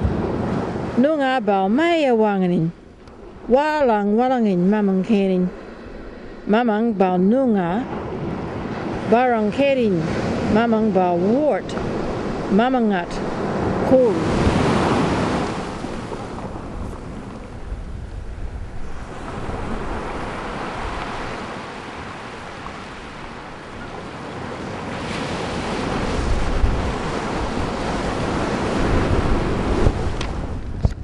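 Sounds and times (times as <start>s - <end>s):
ocean surf: 0.0s - 31.0s
wind: 0.0s - 31.0s.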